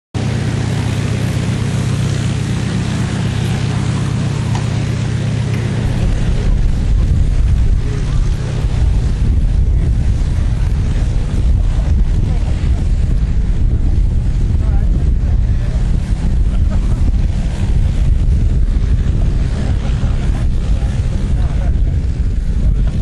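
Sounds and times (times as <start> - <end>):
low mechanical hum: 0.2 - 23.0
wind buffeting microphone: 0.2 - 23.0.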